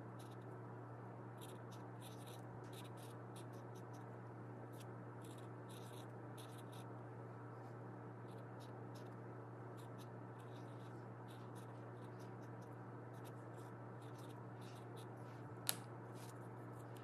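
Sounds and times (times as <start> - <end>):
steady low hum: 0.0 - 17.0
marker scratching on paper towel: 9.8 - 15.1.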